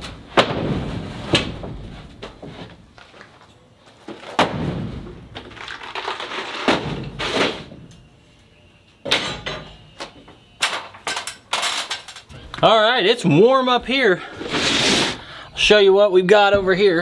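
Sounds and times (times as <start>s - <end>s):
wooden boards knocking and scraping: 0.0s - 2.8s.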